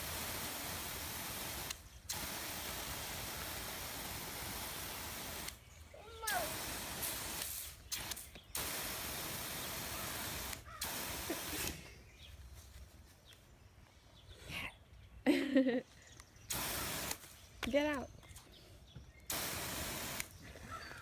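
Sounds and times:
hose nozzle spraying water: 0.0 - 11.8, 16.5 - 17.3, 19.3 - 20.4
child calling out: 6.0 - 6.6.

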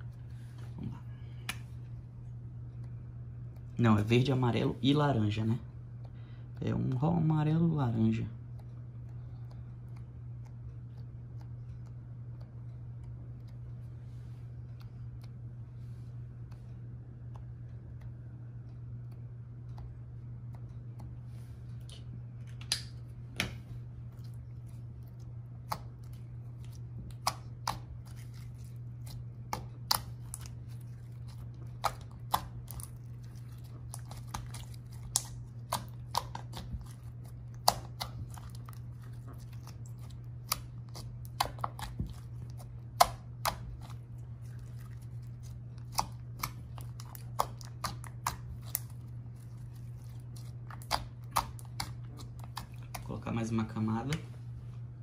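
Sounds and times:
low hum: 0.0 - 55.0.

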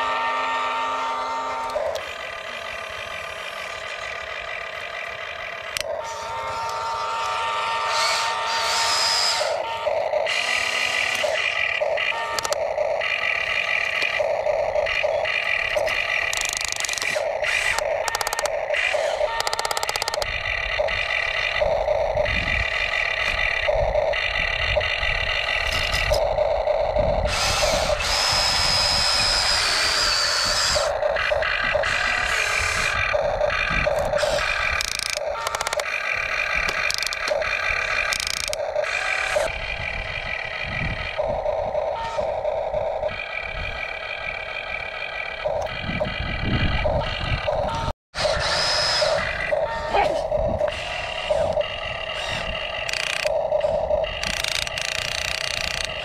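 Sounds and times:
small electric motors whirring: 0.0 - 56.0.

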